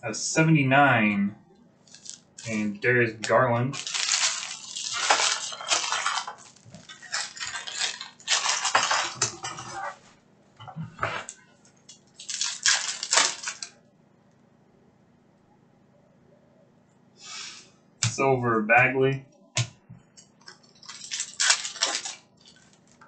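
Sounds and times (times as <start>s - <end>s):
plastic wrappers crinkling: 1.9s - 9.9s, 11.2s - 13.7s, 20.2s - 23.0s.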